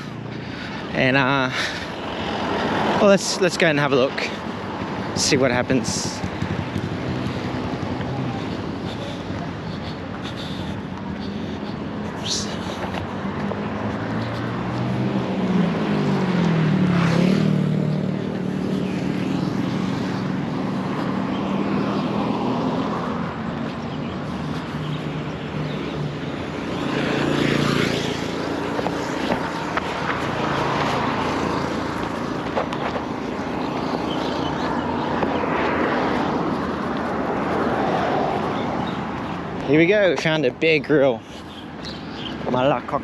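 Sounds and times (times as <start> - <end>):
motor scooter passing: 0.0 - 42.7
car passing by: 12.9 - 23.5, 26.6 - 39.9.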